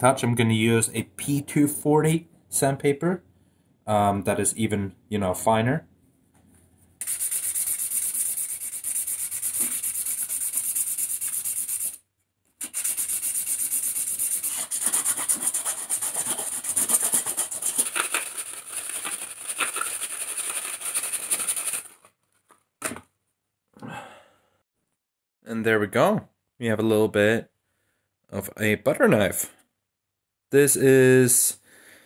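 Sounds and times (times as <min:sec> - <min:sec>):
sandpaper rubbing on wood: 0:07.0 - 0:12.0, 0:12.6 - 0:22.0.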